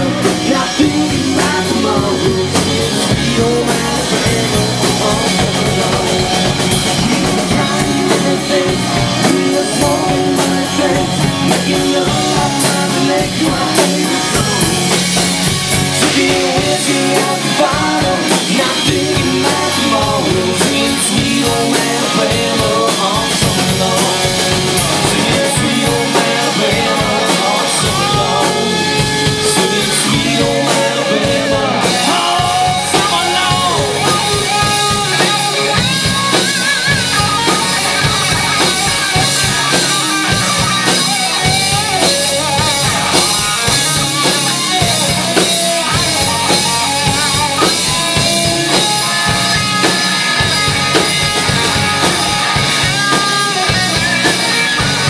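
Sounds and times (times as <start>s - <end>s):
drum kit: 0.0s - 55.0s
electric guitars: 0.0s - 55.0s.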